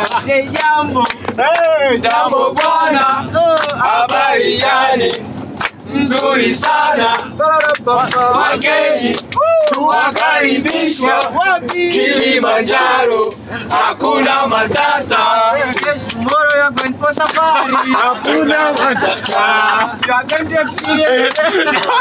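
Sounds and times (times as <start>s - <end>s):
hand claps: 0.0s - 1.8s, 2.6s - 11.8s, 15.7s - 22.0s
men singing together: 0.0s - 5.2s, 5.9s - 22.0s.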